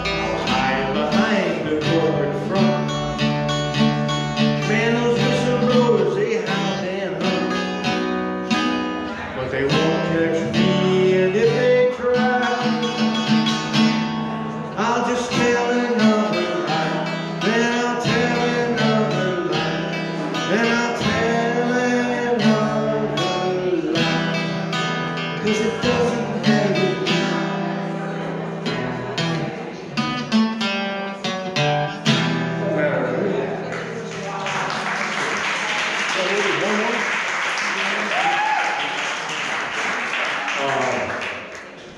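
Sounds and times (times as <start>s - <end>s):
man singing: 0.0s - 3.4s, 4.3s - 7.9s, 9.1s - 13.4s, 14.7s - 27.8s
guitar strummed and picked: 0.0s - 34.4s.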